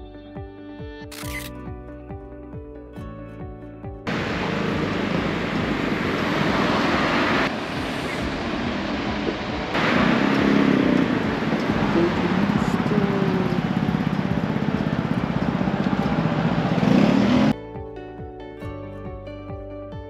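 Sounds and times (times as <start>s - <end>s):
street traffic: 4.0s - 17.6s.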